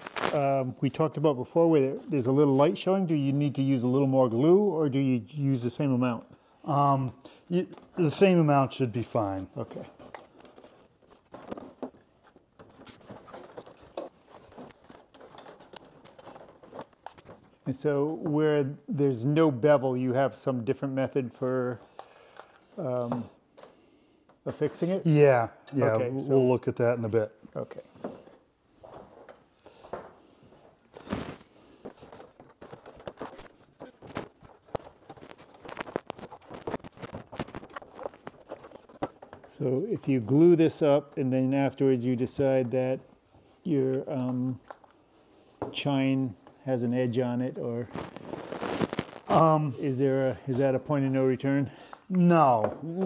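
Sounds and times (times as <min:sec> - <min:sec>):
faint handling ticks and rustles: 0:06.2 - 0:18.6, 0:27.5 - 0:52.4.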